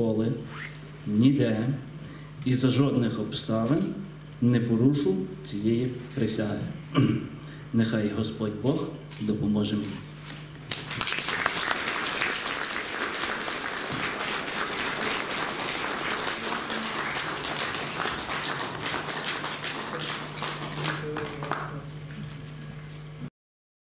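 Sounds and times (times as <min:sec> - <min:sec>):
audience applauding: 0:10.7 - 0:21.9.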